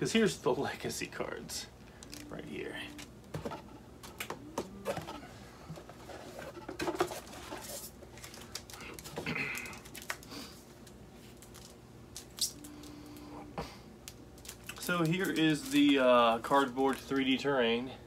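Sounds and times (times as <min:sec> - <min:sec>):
faint steady hum: 0:00.0 - 0:18.0
cardboard and plastic rustling: 0:03.0 - 0:12.9, 0:14.4 - 0:17.4.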